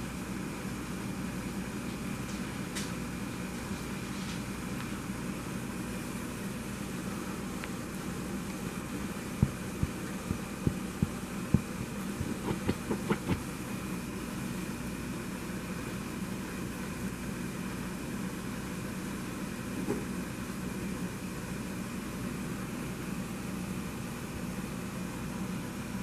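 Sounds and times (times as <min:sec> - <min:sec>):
low background hum: 0:00.0 - 0:26.0
soft thumps: 0:09.4 - 0:13.4.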